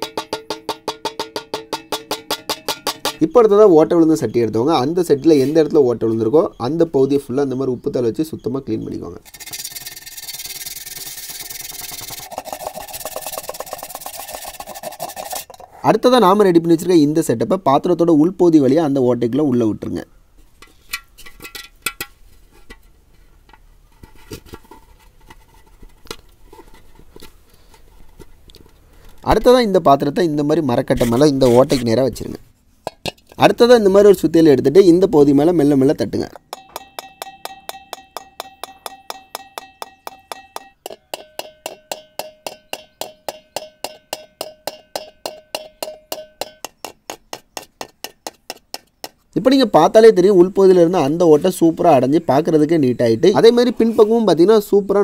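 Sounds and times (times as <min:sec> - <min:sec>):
light metallic clinks and taps: 0:36.4 - 0:49.3.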